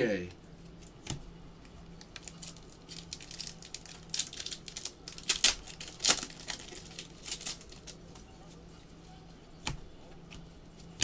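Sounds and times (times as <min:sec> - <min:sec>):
foil wrapper crinkling: 0:01.9 - 0:08.6.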